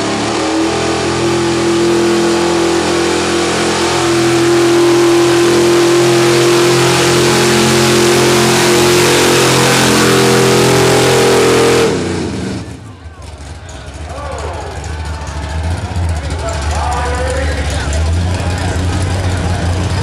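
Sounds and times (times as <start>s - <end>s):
truck engine at high revs: 0.0s - 20.0s.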